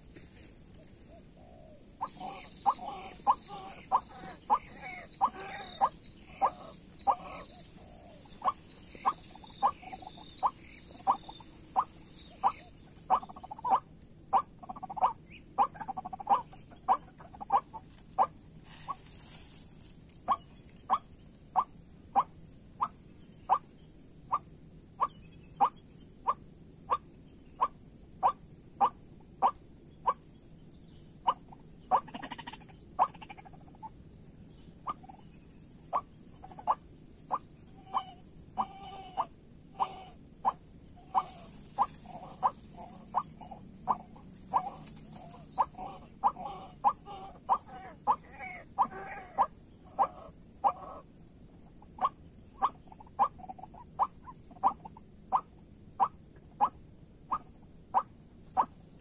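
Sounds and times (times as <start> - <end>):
high insect drone: 0.0 - 59.0
bird harsh calls: 0.9 - 19.6, 31.2 - 59.0.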